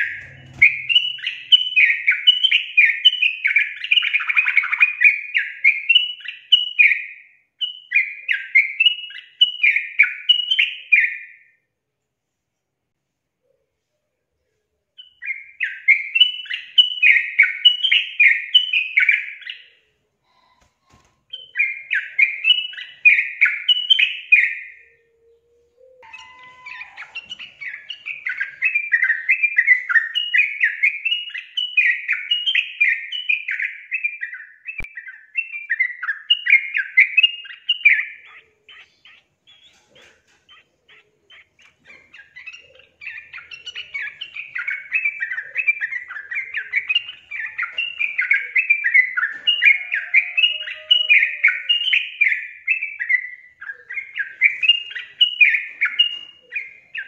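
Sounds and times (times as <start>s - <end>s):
bird chattering song: 0.0s - 11.4s, 26.0s - 57.0s.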